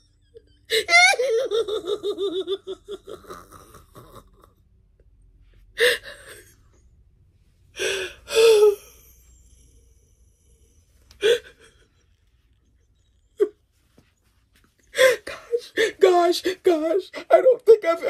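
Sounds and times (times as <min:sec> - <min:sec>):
woman gasping: 0:07.7 - 0:09.9, 0:14.8 - 0:16.6
woman's wavering vocal sounds: 0:07.8 - 0:11.9.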